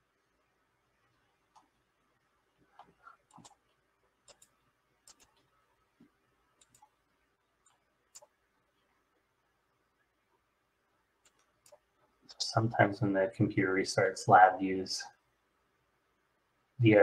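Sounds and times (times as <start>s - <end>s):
computer mouse clicks: 1.5s - 1.8s, 2.7s - 7.0s, 7.6s - 8.4s, 11.2s - 11.9s.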